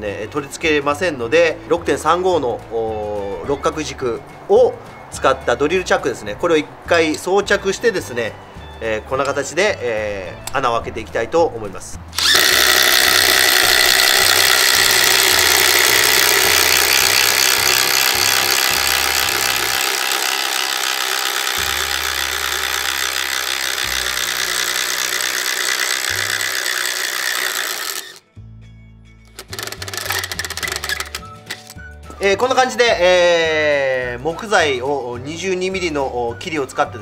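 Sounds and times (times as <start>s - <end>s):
impact driver hammering into wood: 12.2s - 28.2s.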